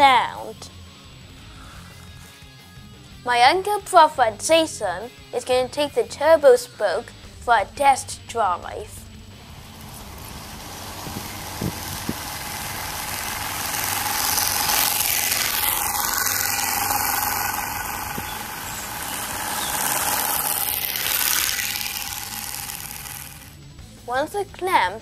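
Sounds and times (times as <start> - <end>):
bicycle spoke card buzzing: 7.2 - 24.0.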